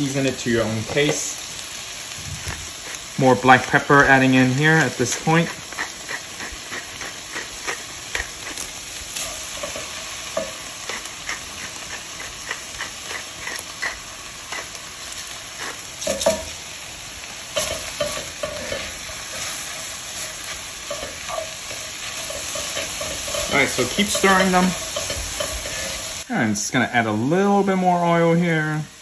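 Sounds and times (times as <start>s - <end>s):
onions sizzling in butter and oil: 0.0s - 29.0s
pepper mill grinding: 2.4s - 16.6s, 17.5s - 26.2s
spatula scraping and stirring: 2.4s - 16.6s, 17.5s - 26.3s.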